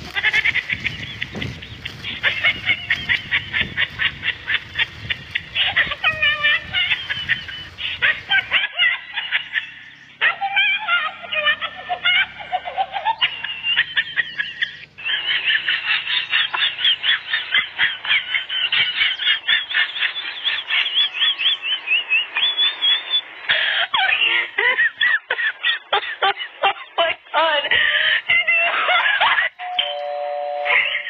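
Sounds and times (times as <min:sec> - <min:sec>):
puppies squealing and yipping: 0:00.1 - 0:21.6.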